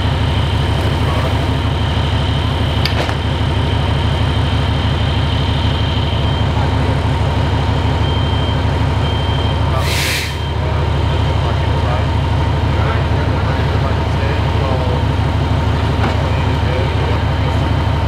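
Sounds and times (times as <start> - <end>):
high whine: 0.0 - 12.1
diesel engine rumble: 0.0 - 18.0.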